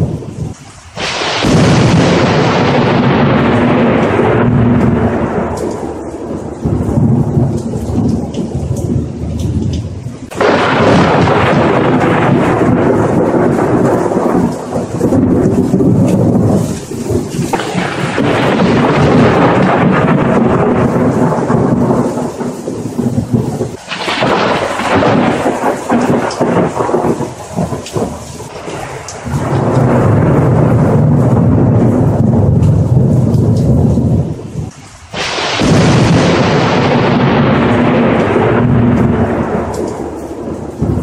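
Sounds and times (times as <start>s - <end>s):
rolling thunder: 0.0s - 41.0s
steady rain: 0.0s - 41.0s.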